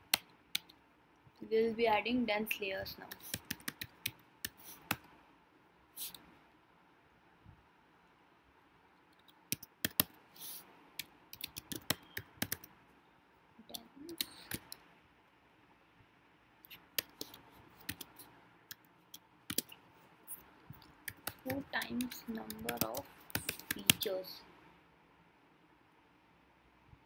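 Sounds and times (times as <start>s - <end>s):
computer keyboard typing: 3.0s - 5.1s, 9.2s - 10.2s, 11.0s - 12.7s, 13.7s - 14.8s, 16.7s - 19.8s, 20.8s - 24.2s.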